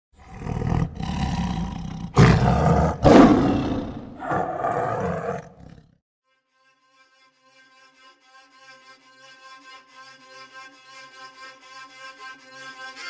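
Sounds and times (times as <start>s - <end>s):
big cat roaring: 0.2s - 6.0s.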